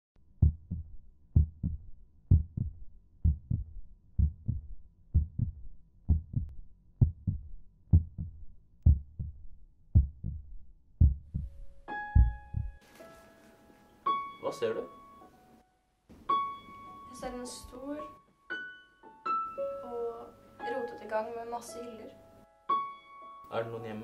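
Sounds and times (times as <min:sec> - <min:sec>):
heartbeat thumps: 0:00.4 - 0:12.8.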